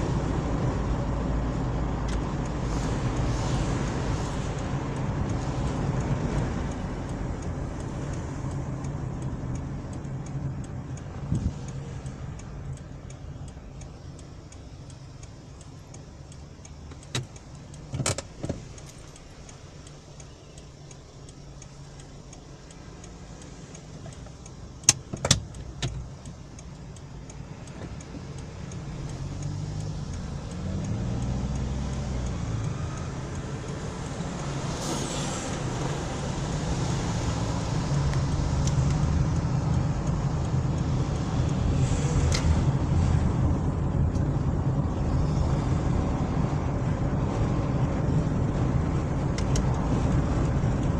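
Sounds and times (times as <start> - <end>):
car engine and road rumble: 0.0 - 50.9
sharp clicks: 4.3 - 34.8, 49.2 - 50.9.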